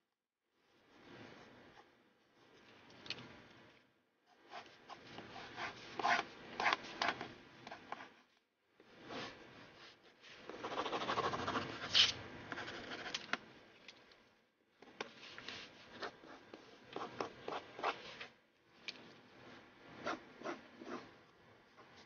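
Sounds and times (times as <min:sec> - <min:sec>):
pencil scratching across paper: 0:04.3 - 0:08.3, 0:10.4 - 0:13.2, 0:15.8 - 0:18.2, 0:19.9 - 0:21.2.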